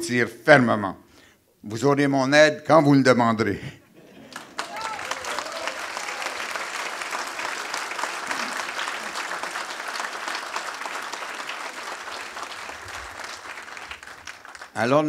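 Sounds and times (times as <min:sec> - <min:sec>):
audience clapping: 0:04.1 - 0:15.0.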